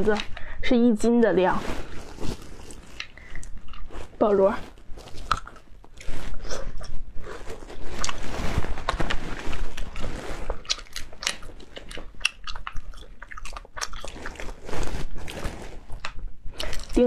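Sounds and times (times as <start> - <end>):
chewing with wet smacking: 2.9 - 4.0, 10.6 - 14.6.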